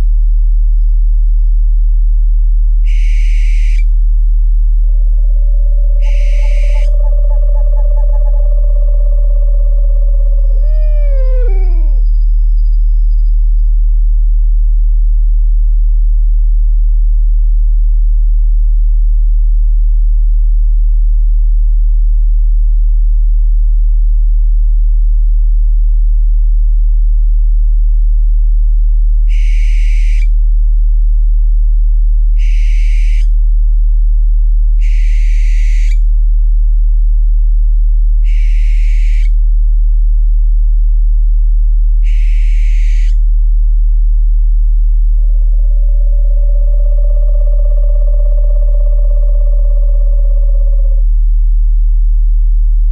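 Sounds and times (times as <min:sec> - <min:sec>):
deep humming tone: 0:00.0 - 0:29.4, 0:35.9 - 0:52.9
owl calling: 0:02.8 - 0:03.9, 0:04.9 - 0:12.3, 0:29.3 - 0:30.3, 0:32.4 - 0:33.3, 0:34.8 - 0:36.0, 0:38.2 - 0:39.4, 0:42.0 - 0:43.2, 0:45.3 - 0:51.1.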